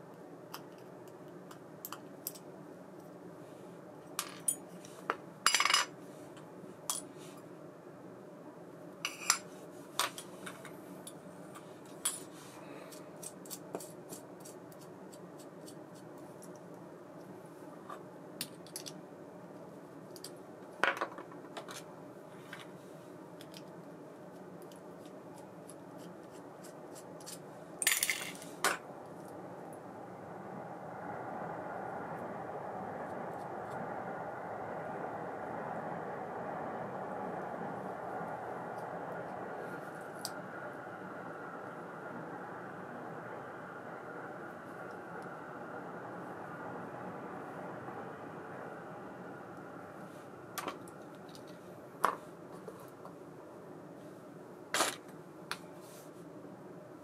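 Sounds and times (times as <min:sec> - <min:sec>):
low background hum: 0:00.0 - 0:57.0.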